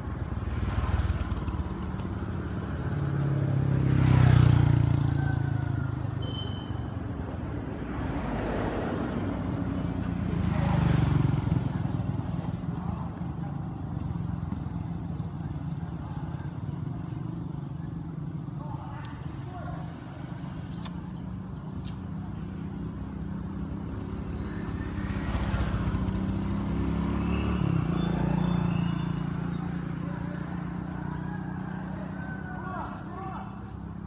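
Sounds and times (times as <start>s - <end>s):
vehicles passing on road: 0.0s - 34.0s.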